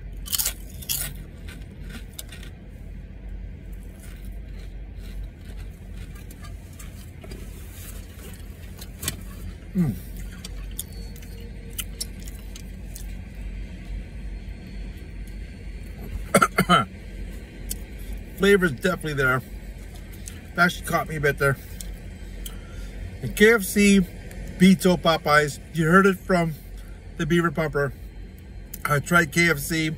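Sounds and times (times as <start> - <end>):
low car hum: 0.0 - 29.9
chips being chewed: 0.1 - 2.6, 3.7 - 8.8, 9.8 - 13.2.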